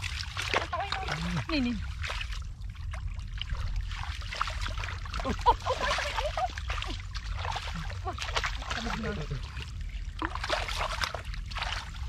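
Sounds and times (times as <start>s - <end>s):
hands splashing in water: 10.2s - 12.0s.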